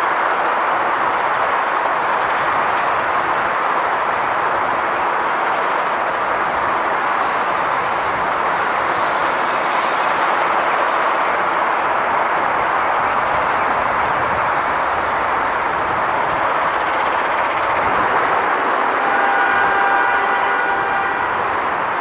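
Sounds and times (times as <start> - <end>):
distant road traffic: 0.0 - 22.0
small birds chirping: 6.4 - 18.0.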